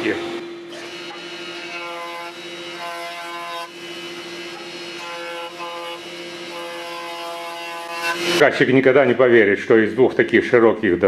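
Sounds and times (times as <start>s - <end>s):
jointer humming: 0.0s - 9.4s
jointer cutting wood: 0.1s - 8.5s.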